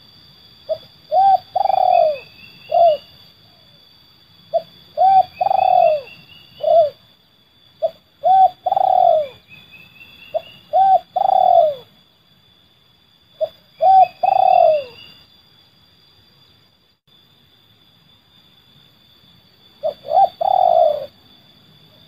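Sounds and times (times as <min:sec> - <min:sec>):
dove cooing: 0:00.7 - 0:03.6, 0:04.5 - 0:07.0, 0:07.8 - 0:09.5, 0:10.3 - 0:11.9, 0:13.4 - 0:15.1, 0:19.8 - 0:21.2.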